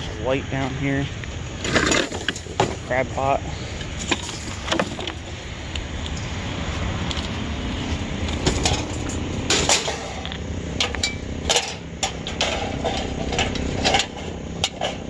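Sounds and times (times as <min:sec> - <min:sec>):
crab pot clattering onto scrap metal: 0:11.5 - 0:15.0.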